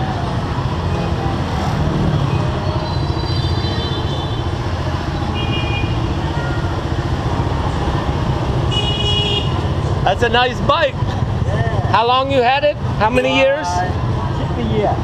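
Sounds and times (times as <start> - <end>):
motorbike engines rumbling: 0.0 - 15.0
high-pitched horn beeps: 0.9 - 2.4.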